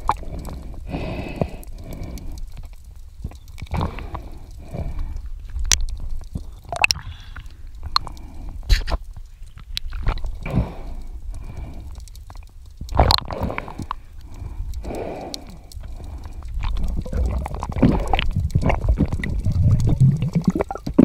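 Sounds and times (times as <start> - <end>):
underwater gurgling bubbles: 0.0 - 21.0
underwater clicks and knocks: 4.9 - 10.4, 12.0 - 21.0.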